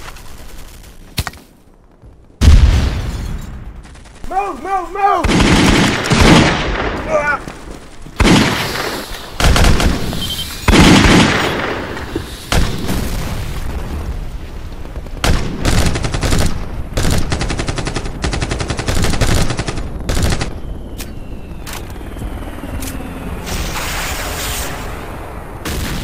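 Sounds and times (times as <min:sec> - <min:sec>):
loud explosions: 0:02.4 - 0:17.3
automatic gunfire bursts: 0:05.2 - 0:06.6, 0:09.4 - 0:11.6.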